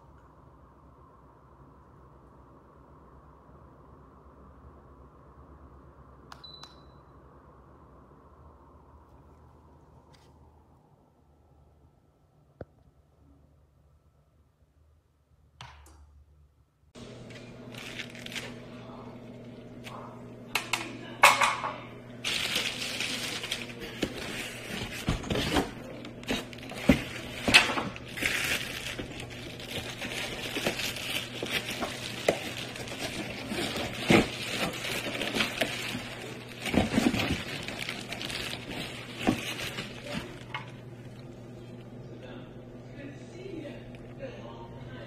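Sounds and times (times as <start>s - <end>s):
steady low hum: 0.0s - 45.0s
plastic wrap crinkling: 17.2s - 19.7s, 22.2s - 40.8s
cardboard box rustling: 22.3s - 40.5s.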